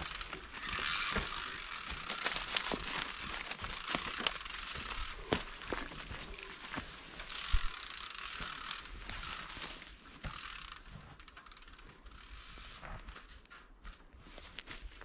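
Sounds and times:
bike freewheel ratchet clicking: 0.0 - 5.2, 7.3 - 9.6, 10.2 - 12.7
tyres rustling through dry leaves: 0.0 - 10.6.

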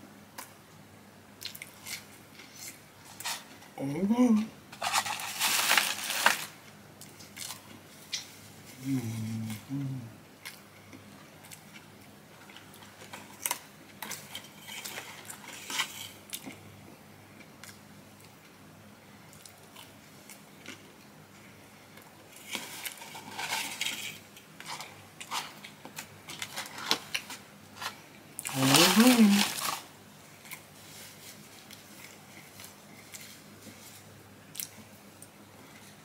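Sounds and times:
paper and cardboard crinkling: 4.7 - 6.6, 22.5 - 25.6, 26.3 - 29.9
person humming: 8.8 - 10.2.

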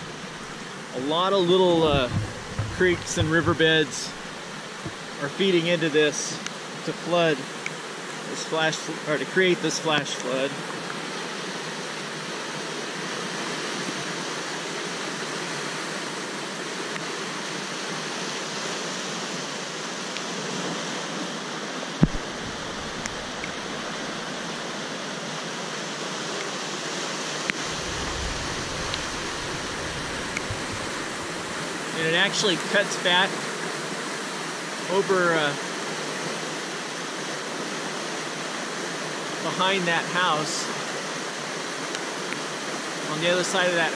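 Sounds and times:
floodwater rushing: 0.0 - 43.9
single thump: 1.8 - 5.0, 22.0 - 23.2.

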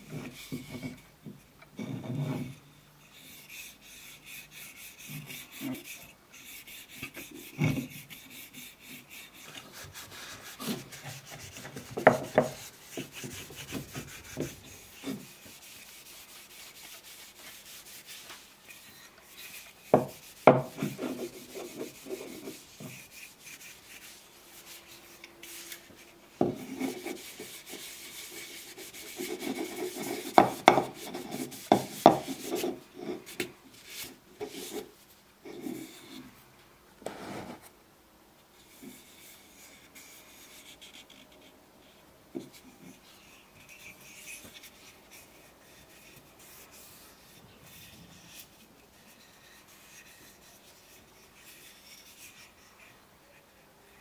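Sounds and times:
cloth rubbing on wood: 8.4 - 35.0.

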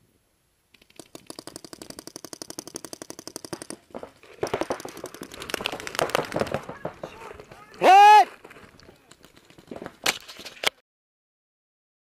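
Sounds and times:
clatter of shots: 0.8 - 7.6
paintball marker rapid firing: 0.8 - 7.7.

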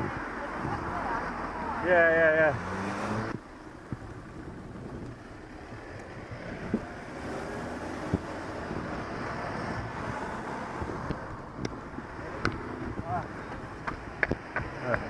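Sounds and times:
low traffic rumble: 0.0 - 15.0
wind on microphone: 3.1 - 14.6.

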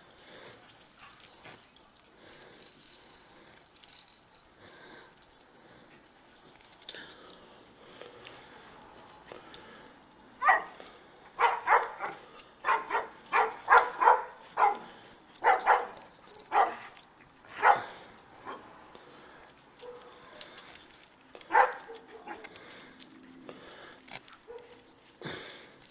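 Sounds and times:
dog barking: 10.4 - 10.8, 11.4 - 17.0, 17.6 - 18.6, 21.5 - 22.4, 24.5 - 24.8.

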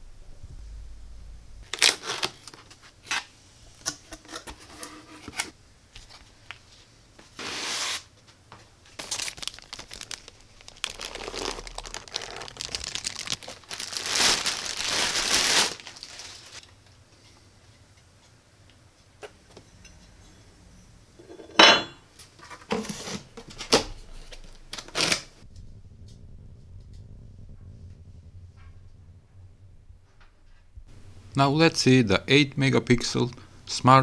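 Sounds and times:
packaging crinkling and rustling: 1.6 - 3.3, 8.8 - 16.7, 22.4 - 25.4
packaging tearing: 1.7 - 3.3, 8.9 - 16.6, 23.1 - 25.4.

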